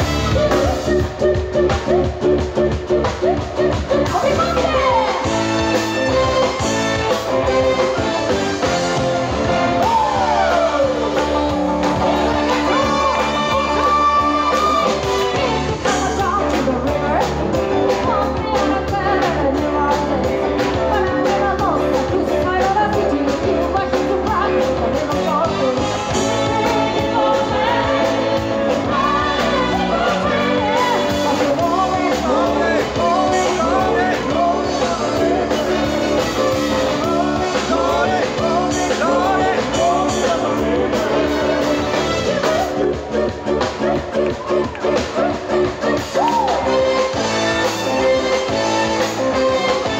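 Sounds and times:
horn section: 0.0s - 18.8s, 25.0s - 49.9s
live band playing upbeat song: 0.0s - 49.9s
steady drum beat: 0.0s - 49.9s
woman singing into microphone: 9.8s - 35.9s.

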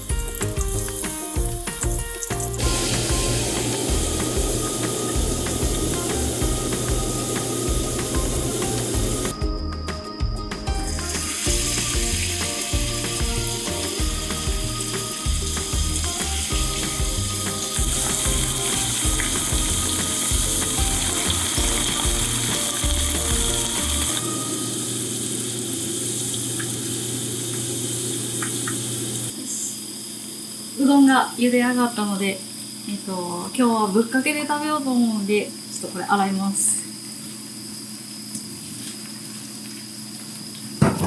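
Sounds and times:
fritters sizzling in hot oil: 0.0s - 9.3s, 10.8s - 29.3s
background music with bass beat: 0.0s - 24.1s.

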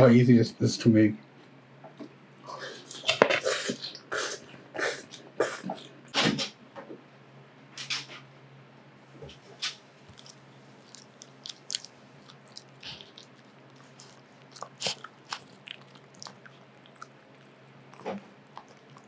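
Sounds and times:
faint low hum: 0.0s - 19.0s
dog licking and chewing: 10.1s - 19.0s.

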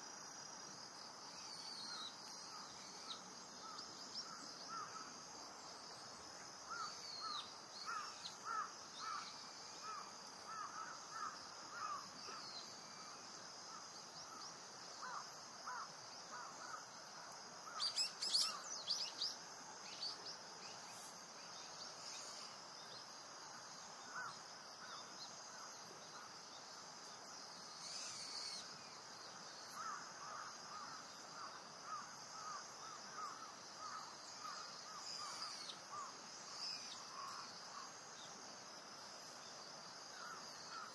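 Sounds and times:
wild bird calls: 6.7s - 13.0s.

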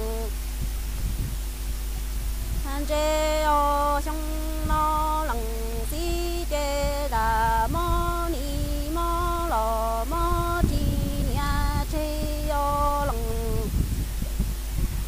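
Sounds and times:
woman singing unaccompanied: 0.0s - 0.4s, 2.6s - 14.0s.

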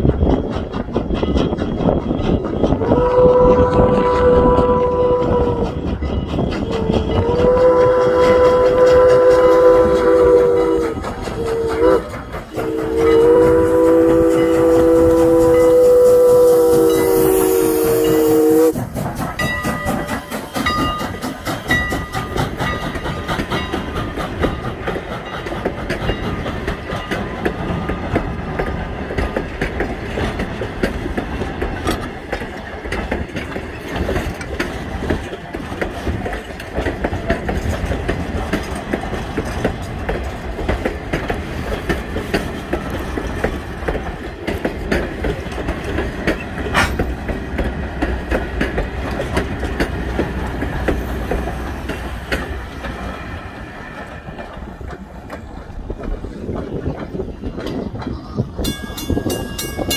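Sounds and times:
train wheels clacking over rail joints: 0.0s - 59.9s
steam whistle chord: 7.1s - 18.8s.

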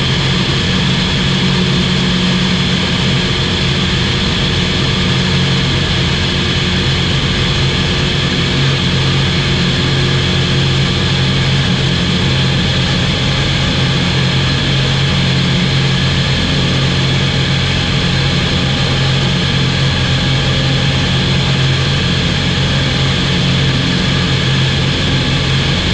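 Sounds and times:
broad rushing noise: 0.0s - 25.9s
light aircraft engine hum: 0.0s - 25.9s.

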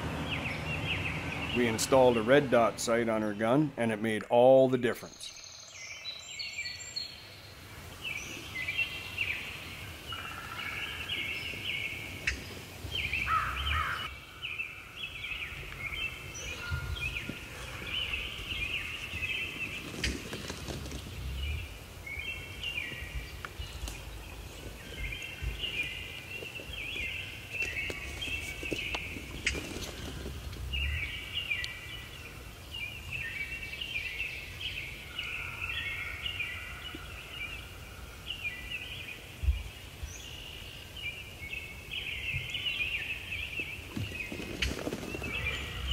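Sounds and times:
songbirds chirping: 0.0s - 45.9s
low rumble: 21.0s - 21.8s.

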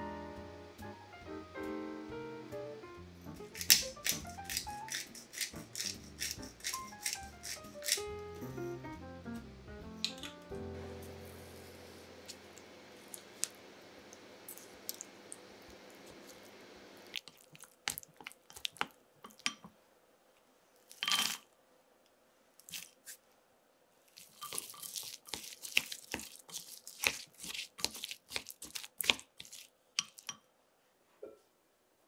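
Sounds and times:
crisp crunches in kitchen: 24.1s - 30.3s.

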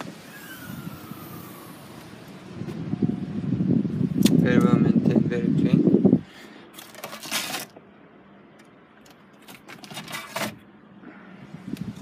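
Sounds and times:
rustling handling noise: 6.7s - 7.9s, 9.0s - 10.7s.

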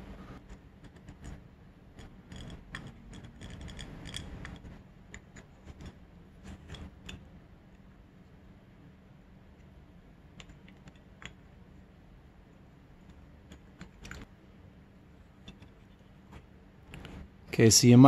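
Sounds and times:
faint metal clicks and scrapes: 0.3s - 7.8s, 15.4s - 17.3s.

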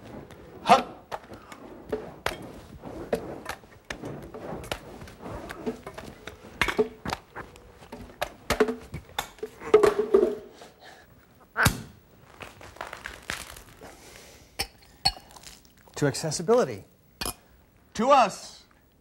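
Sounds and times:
juggled props knocking and clanking: 1.1s - 10.5s.

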